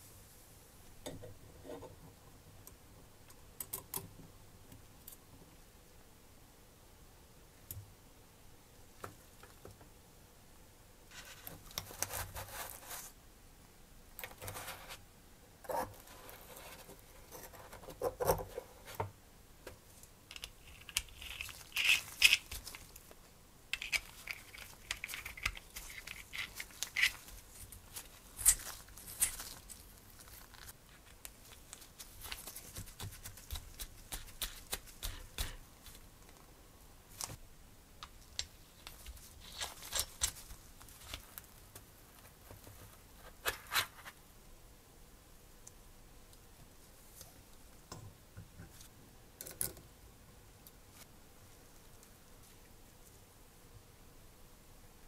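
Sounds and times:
rubber gloves rustling: 19.8 - 36.5, 38.3 - 44.2
metal parts scraping and clicking: 20.3 - 22.5.

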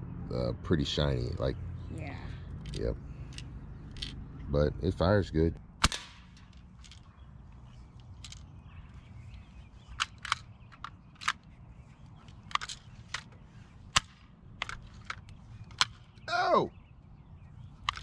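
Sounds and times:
metallic clicks of rifle lever: 2.6 - 4.2, 5.8 - 8.6, 9.3 - 11.6, 12.2 - 16.0, 17.8 - 18.0
air rifle shot crack: 5.8 - 6.4.

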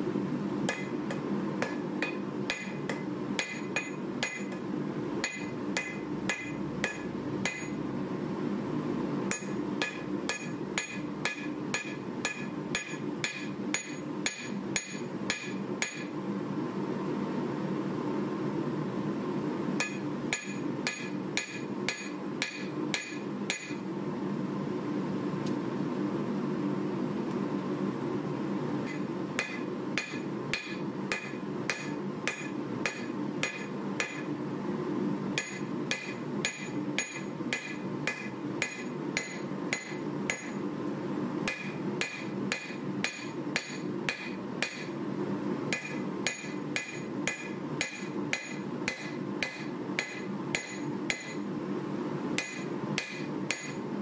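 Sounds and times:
hammer striking blade on anvil: 0.7 - 4.6, 5.2 - 7.8, 9.3 - 16.1, 19.8 - 23.8, 28.9 - 34.3, 35.4 - 40.6, 41.5 - 45.0, 45.7 - 51.5, 52.4 - 53.8.

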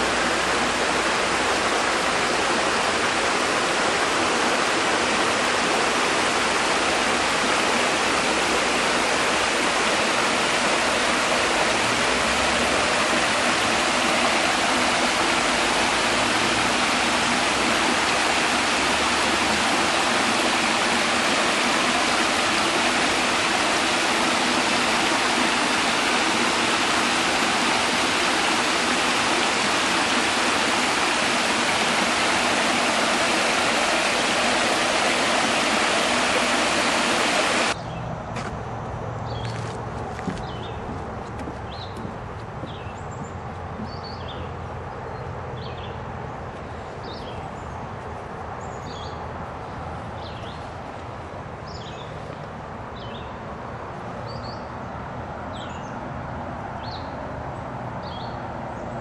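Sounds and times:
water rushing over rocks: 0.0 - 37.8.

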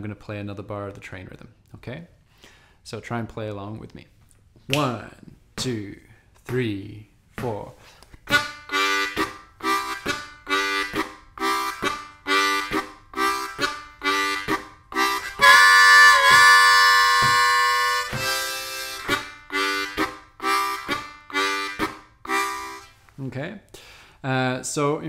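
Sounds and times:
breath over harmonica: 2.3 - 2.8, 7.8 - 23.0, 23.7 - 24.2
harmonica chugging chords: 8.2 - 23.0
harmonica train-whistle wail: 8.3 - 23.0.

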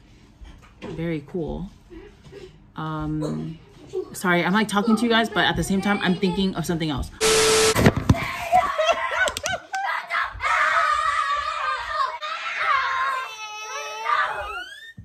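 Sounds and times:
children shrieking: 10.1 - 15.0.

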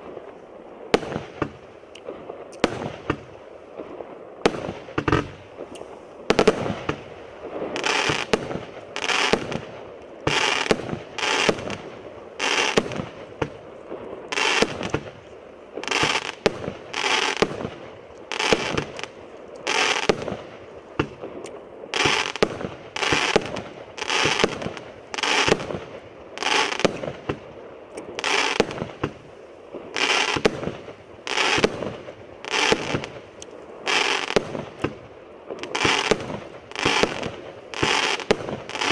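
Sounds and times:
fireworks firing and bursting: 0.0 - 38.9.

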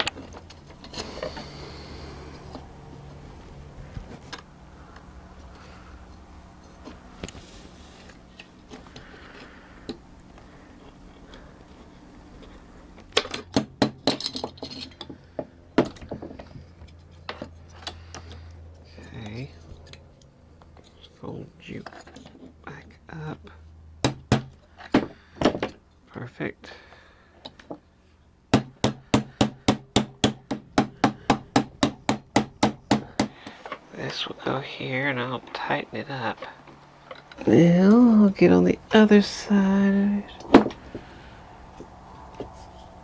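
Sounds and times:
metal parts clinking: 12.4 - 15.2
hammer tapping on metal: 28.5 - 33.6.

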